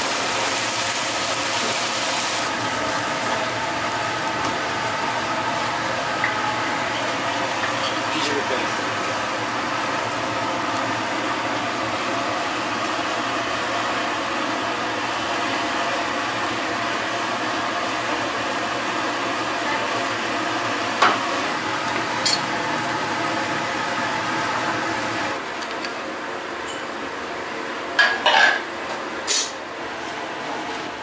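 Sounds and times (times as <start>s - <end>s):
faint sizzling from pan: 0.0s - 17.6s
gas stove burners hissing: 0.0s - 31.0s.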